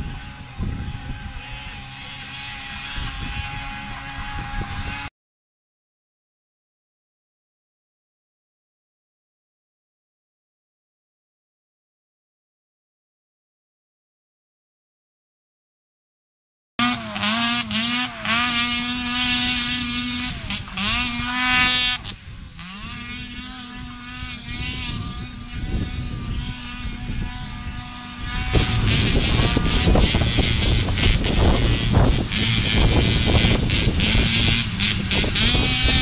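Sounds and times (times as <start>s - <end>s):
snowmobile engine running hard: 0.0s - 5.1s, 16.8s - 36.0s.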